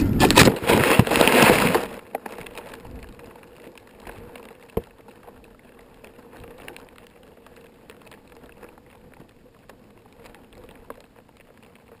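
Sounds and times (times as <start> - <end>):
twigs rustling against housing: 0.0 - 12.0.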